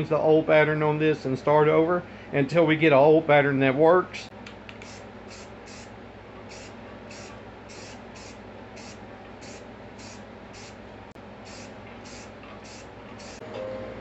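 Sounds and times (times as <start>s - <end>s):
aerosol can spraying bursts: 6.5s - 10.8s, 11.5s - 13.4s.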